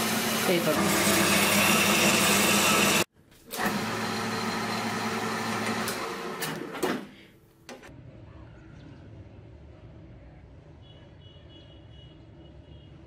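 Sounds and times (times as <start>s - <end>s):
metal lathe running: 0.0s - 6.4s.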